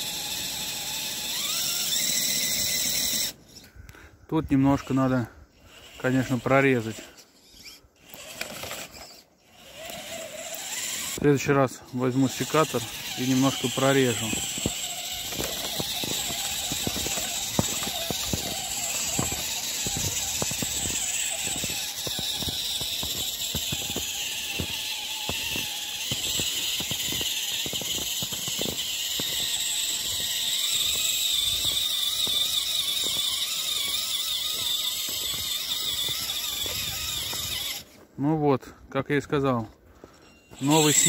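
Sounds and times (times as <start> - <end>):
electric motor and gears whining: 0.0 - 3.8, 4.6 - 38.1, 40.4 - 41.0
wheels crunching through wet snow: 12.1 - 38.1, 40.5 - 41.0.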